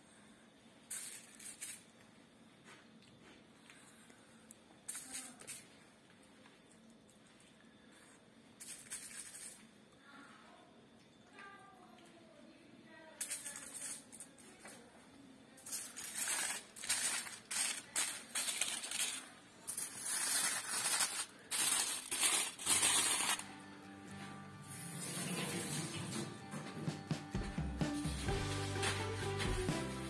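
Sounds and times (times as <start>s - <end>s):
aluminium foil crinkling: 8.6s - 9.7s, 15.6s - 23.5s
background music: 23.2s - 30.0s.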